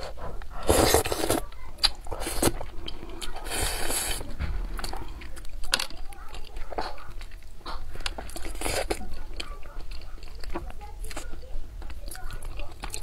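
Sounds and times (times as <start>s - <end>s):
person biting and chewing: 0.0s - 4.2s, 6.4s - 11.3s.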